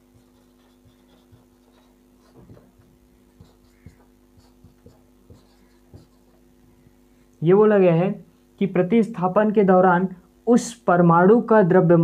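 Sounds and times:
marker scratching on whiteboard: 0:00.0 - 0:06.9
low electrical hum: 0:00.0 - 0:12.0.

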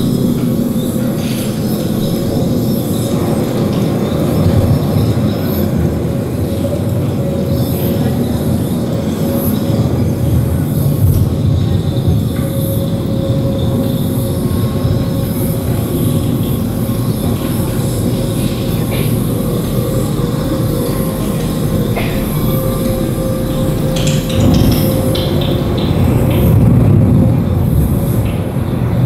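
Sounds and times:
dense low rumble: 0:09.7 - 0:29.0.

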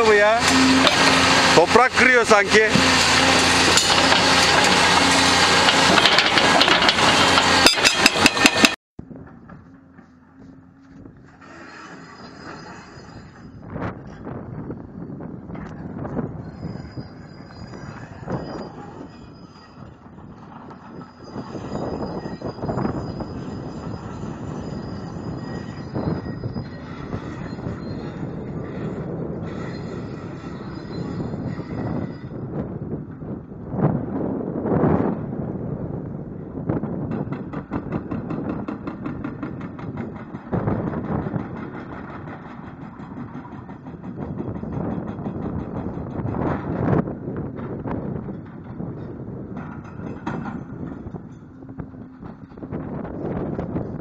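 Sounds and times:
hydraulic rock breaker hammering: 0:00.0 - 0:10.1, 0:37.0 - 0:54.0
diesel engine hum: 0:00.0 - 0:12.8.

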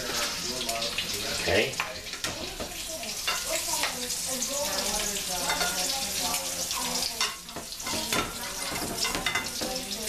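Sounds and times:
food sizzling in oil: 0:00.0 - 0:10.0
metal tongs clicking on pan: 0:07.0 - 0:09.9.

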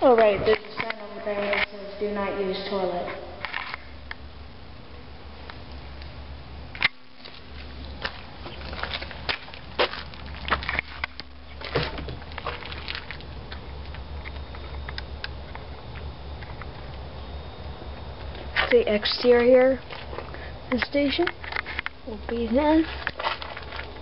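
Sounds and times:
footsteps on debris: 0:06.9 - 0:13.7, 0:18.3 - 0:20.4, 0:21.1 - 0:24.0.

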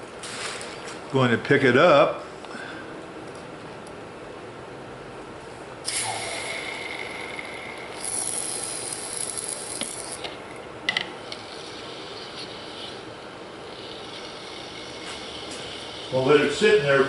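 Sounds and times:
hot metal sizzling in water: 0:05.9 - 0:10.2.

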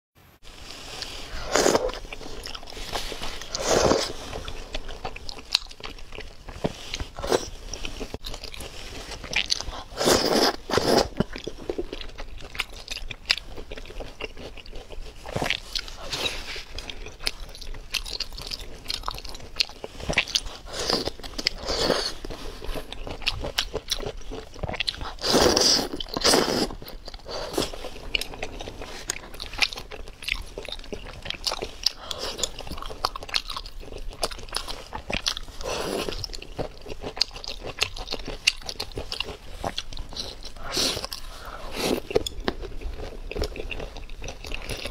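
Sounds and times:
slurping noodles: 0:00.7 - 0:05.1, 0:06.9 - 0:11.3, 0:20.0 - 0:22.9, 0:25.0 - 0:29.6, 0:34.8 - 0:36.6, 0:39.5 - 0:42.2
chewing with clicks: 0:25.9 - 0:41.3.

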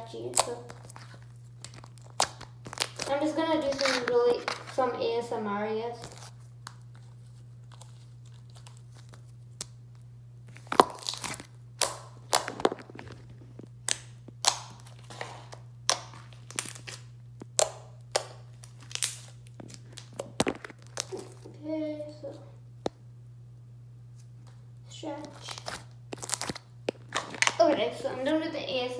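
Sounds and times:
slime squishing wet pops: 0:13.8 - 0:15.0, 0:15.8 - 0:21.4.

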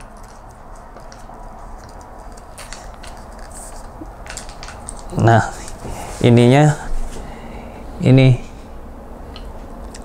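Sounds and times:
steady low hiss: 0:02.9 - 0:10.0.

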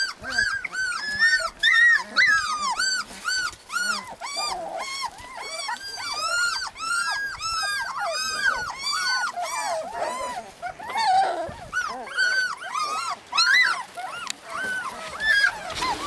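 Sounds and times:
puppies whining: 0:00.0 - 0:16.0.

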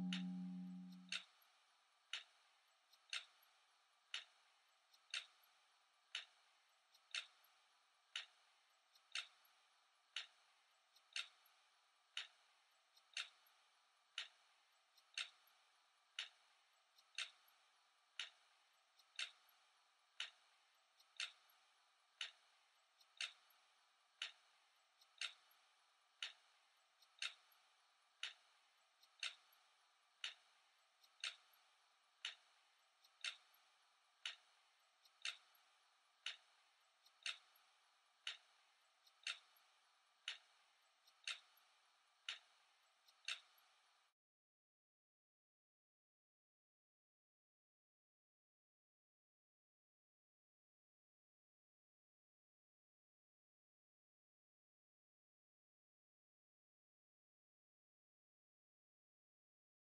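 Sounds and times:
clock ticking: 0:00.0 - 0:43.9.

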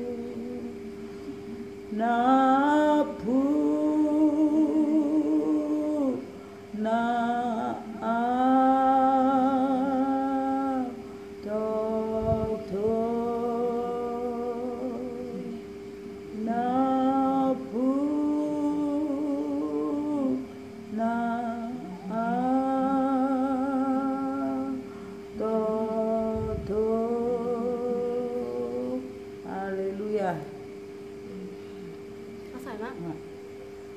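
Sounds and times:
woman singing unaccompanied: 0:00.0 - 0:31.2
steady low tone: 0:00.0 - 0:33.9.

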